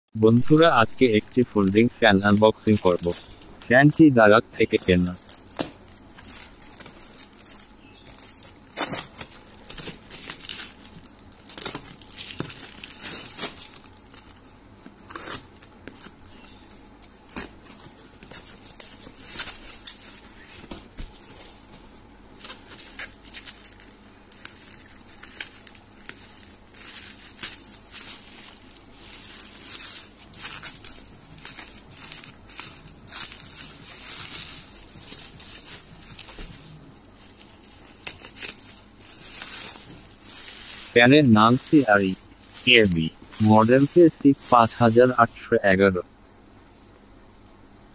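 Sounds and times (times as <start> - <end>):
plastic bag rustling: 0.2 - 45.8
bubble wrap crinkling: 0.2 - 46.0
scissors cutting bubble wrap: 0.4 - 3.9, 4.7 - 21.7, 22.4 - 44.9
cardboard box tearing: 15.0 - 16.5.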